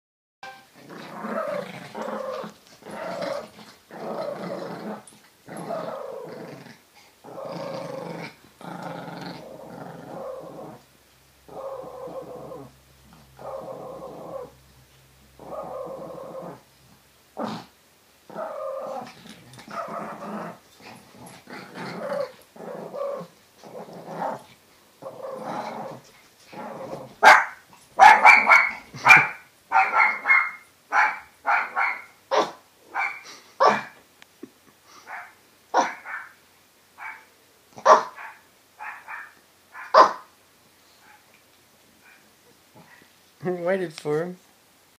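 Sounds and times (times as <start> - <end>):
small dogs growling: 0.8 - 14.6, 15.3 - 30.3, 42.0 - 43.1
dog barking sharply: 27.2 - 33.9, 37.8 - 40.3.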